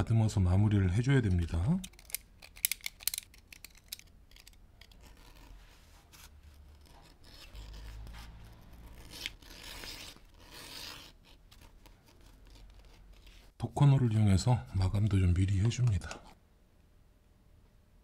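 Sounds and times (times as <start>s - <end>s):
tool scraping leather edges: 4.8s - 13.5s.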